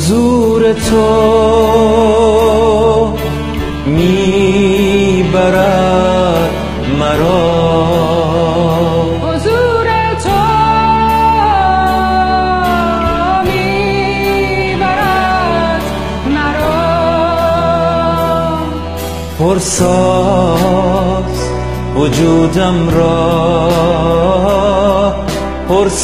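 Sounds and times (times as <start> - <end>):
backing track music: 0.0 - 26.0
woman singing with vibrato: 3.8 - 21.4.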